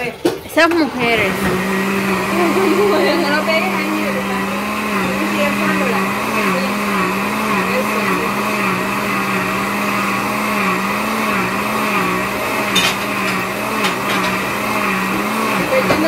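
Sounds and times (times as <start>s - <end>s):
blender motor running: 0.5s - 16.0s.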